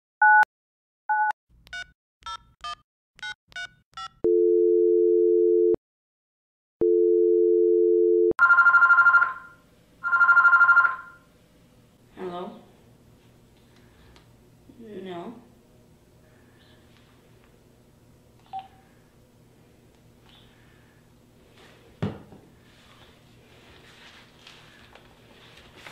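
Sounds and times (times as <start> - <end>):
long steady phone tones: 4.2 - 5.8, 6.8 - 11.3, 18.5 - 18.9
electronic phone ringing: 6.8 - 11.3
touch-tone keypad beeps: 18.5 - 18.8.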